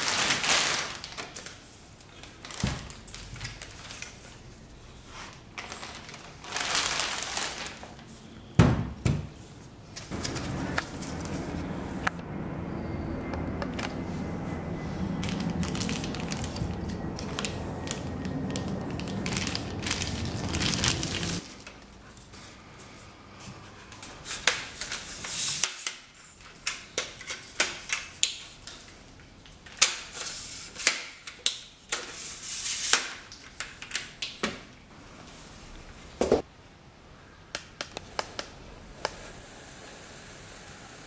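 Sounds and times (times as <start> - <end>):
plastic bag crinkling: 0.0 - 4.5, 5.3 - 8.1, 15.2 - 21.8
low background noise: 0.0 - 41.0.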